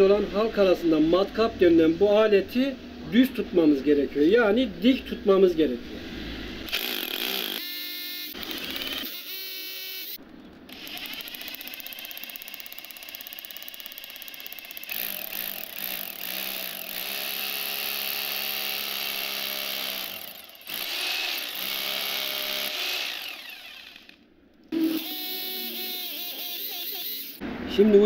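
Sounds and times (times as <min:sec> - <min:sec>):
drill grinding into concrete: 0:06.7 - 0:24.2, 0:24.8 - 0:27.4.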